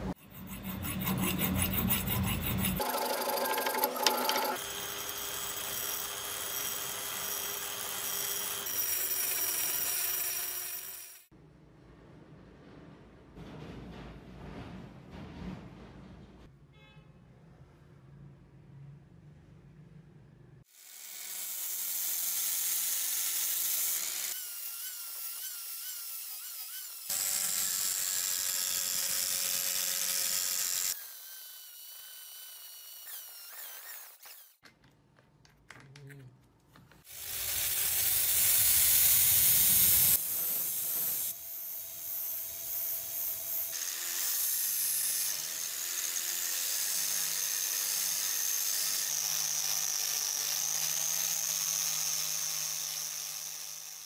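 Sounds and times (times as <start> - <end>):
angle grinder sanding metal: 0.0 - 11.3, 20.9 - 34.6, 37.1 - 54.0.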